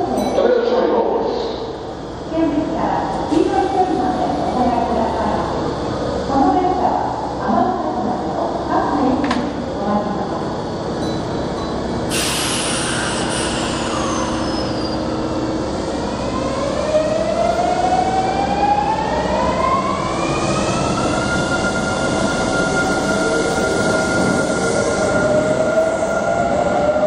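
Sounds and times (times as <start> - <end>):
moving train noise: 0.0 - 27.0
train inverter whine: 0.0 - 27.0
hiss of air: 12.1 - 14.5.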